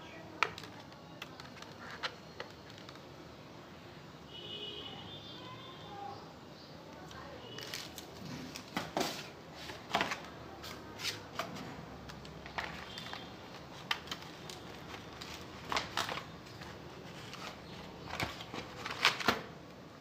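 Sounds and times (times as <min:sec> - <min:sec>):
plastic wrap rustling: 0:07.4 - 0:19.6
keyboard moved in box: 0:11.3 - 0:19.5.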